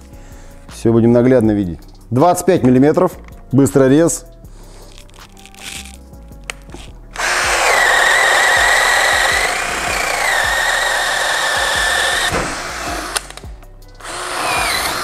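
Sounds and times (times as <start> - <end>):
drill whining boring wood: 7.2 - 13.4, 14.0 - 15.0.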